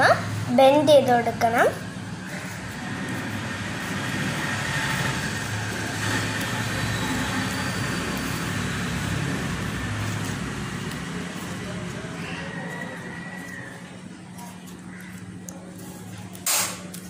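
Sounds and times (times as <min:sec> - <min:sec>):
steady rushing noise: 0:00.3 - 0:12.0.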